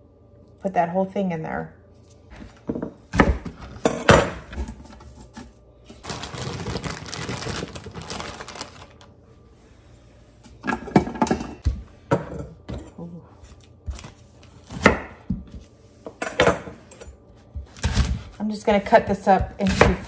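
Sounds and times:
knife chopping on plastic board: 0:02.7 - 0:04.5, 0:17.5 - 0:20.0
plastic bag crinkling: 0:05.9 - 0:09.1.

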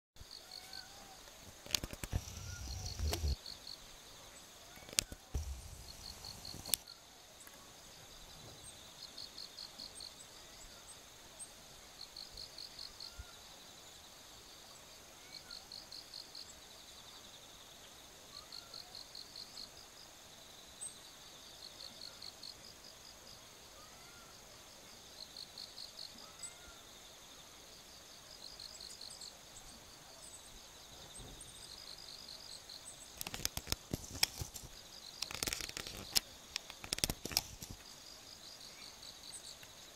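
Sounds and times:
insects chirping in trills: 0:00.2 - 0:39.9
sharp crackles and knocks: 0:01.5 - 0:03.4, 0:04.8 - 0:06.8, 0:33.2 - 0:37.9
high-pitched hum: 0:02.1 - 0:03.4.

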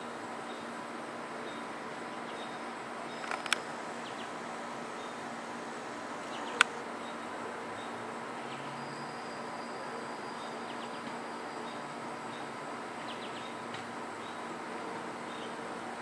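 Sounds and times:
steady background hiss: 0:00.0 - 0:16.0
sharp click: 0:03.2 - 0:03.6.

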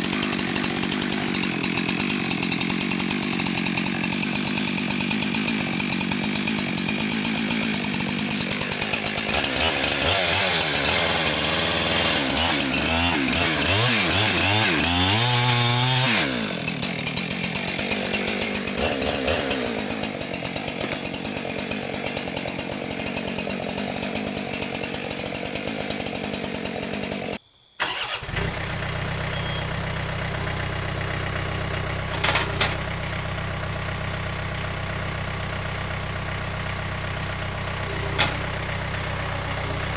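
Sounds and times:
tractor diesel engine idling: 0:00.0 - 0:10.1, 0:16.3 - 0:39.9
chainsaw revving: 0:00.0 - 0:39.9.

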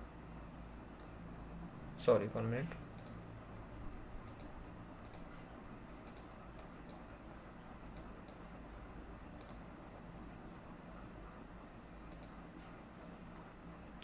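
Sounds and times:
low steady hum: 0:00.0 - 0:14.0
computer mouse clicking: 0:01.0 - 0:01.2, 0:03.0 - 0:03.2, 0:04.2 - 0:05.3, 0:06.0 - 0:07.1, 0:07.8 - 0:08.4, 0:09.4 - 0:09.6, 0:12.1 - 0:12.4.

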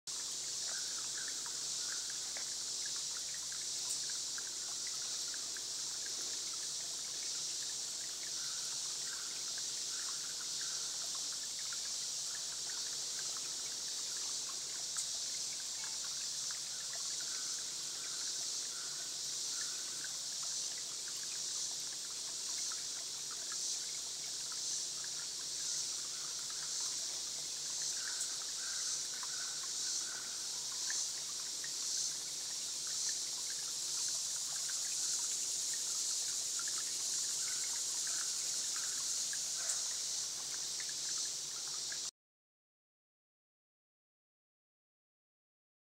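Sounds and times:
insects calling: 0:00.1 - 0:42.1
trickling water hiss: 0:00.1 - 0:42.1.

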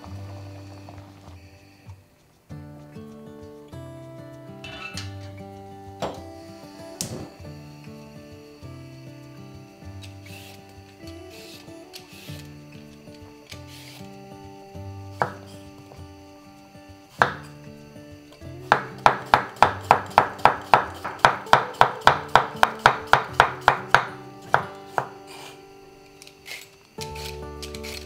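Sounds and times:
knife chopping on wooden board: 0:15.2 - 0:15.4, 0:18.7 - 0:25.1.

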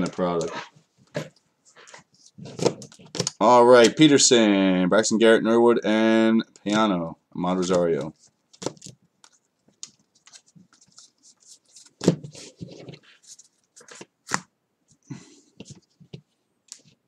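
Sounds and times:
cards flipping and rustling: 0:00.0 - 0:04.0, 0:07.6 - 0:14.5.

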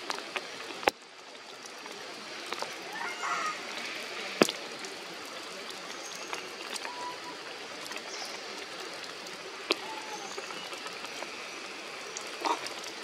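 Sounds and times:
rain falling through foliage: 0:00.0 - 0:13.0
raindrops tapping: 0:00.0 - 0:13.0.

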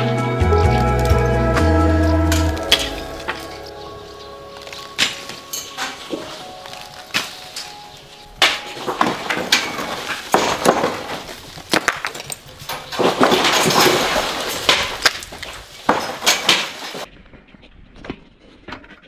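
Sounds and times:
gritty scraping and crumbling: 0:00.5 - 0:19.0
stones knocking and clattering: 0:04.6 - 0:07.8, 0:08.4 - 0:17.1.

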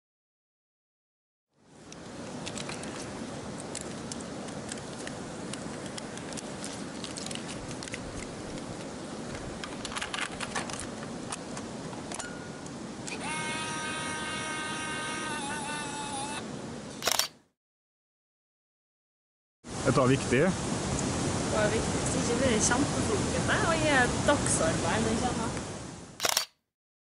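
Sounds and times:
camera handling clicks and rattles: 0:02.4 - 0:03.0, 0:03.6 - 0:08.9, 0:09.6 - 0:12.2, 0:26.2 - 0:26.5
steady hiss: 0:19.7 - 0:26.1.

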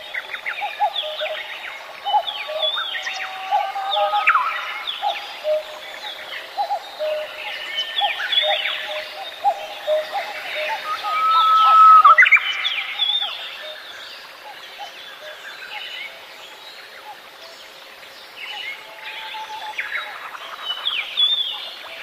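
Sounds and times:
birds chirping and whistling: 0:05.4 - 0:13.4.

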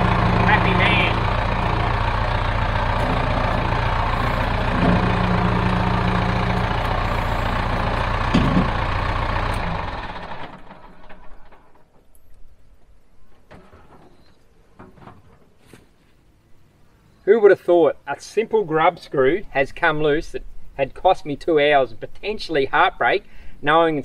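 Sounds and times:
hydraulic tone: 0:00.0 - 0:11.2
tractor diesel engine running: 0:00.0 - 0:12.0.

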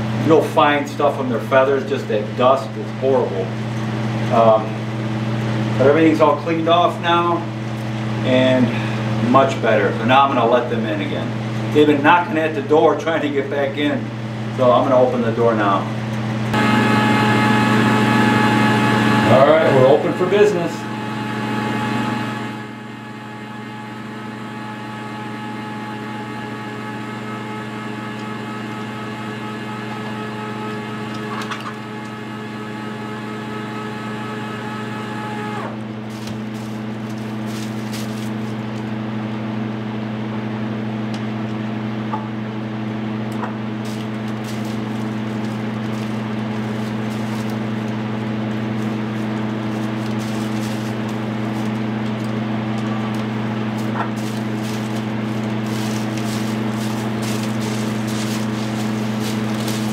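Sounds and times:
electric motor hum: 0:00.0 - 0:59.9
higher tones: 0:16.6 - 0:35.9.

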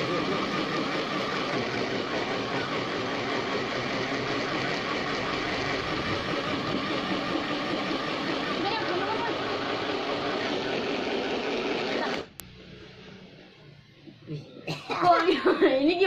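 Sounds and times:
electric blender motor running: 0:00.0 - 0:12.4.

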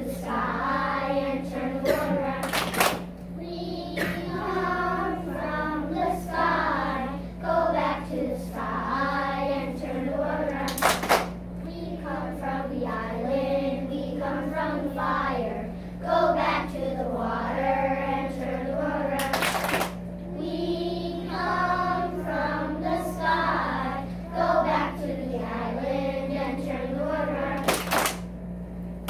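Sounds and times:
low hum: 0:00.0 - 0:29.0
children singing: 0:03.4 - 0:10.8, 0:20.4 - 0:27.7.

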